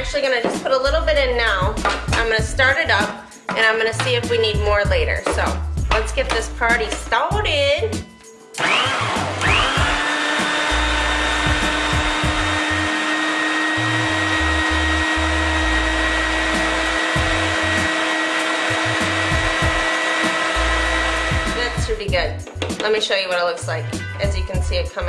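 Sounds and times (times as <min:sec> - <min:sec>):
food processor motor whining: 0:08.6 - 0:22.0.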